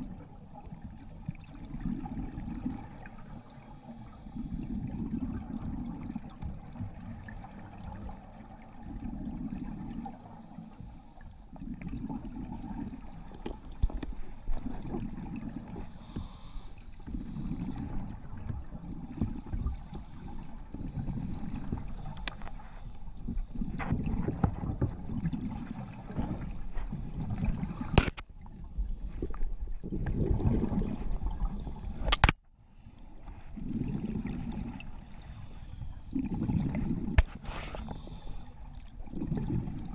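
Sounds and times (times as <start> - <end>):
diver breathing through regulator: 0.0 - 1.4, 2.9 - 5.0, 9.3 - 11.6, 12.8 - 14.8, 15.4 - 18.0, 18.8 - 23.9, 25.5 - 28.0, 31.3 - 38.6
bubbles rumbling: 1.4 - 3.0, 4.5 - 7.1, 11.5 - 13.1, 14.6 - 15.9, 20.6 - 22.0, 23.4 - 28.0, 29.7 - 31.8, 33.6 - 34.9, 36.1 - 37.2, 39.0 - 39.9.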